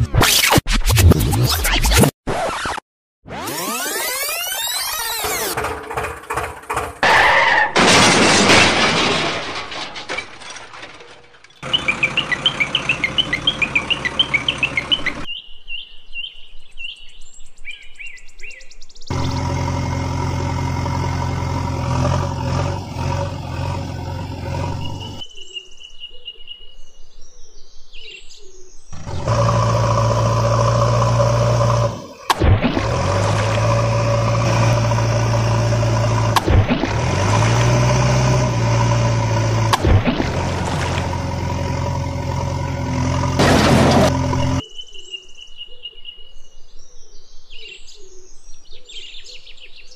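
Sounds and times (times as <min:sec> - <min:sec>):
diesel engine running: 0:05.1 - 0:07.9, 0:11.6 - 0:15.3, 0:19.1 - 0:25.2, 0:29.0 - 0:44.6
birds chirping: 0:11.0 - 0:20.0, 0:22.0 - 0:32.3.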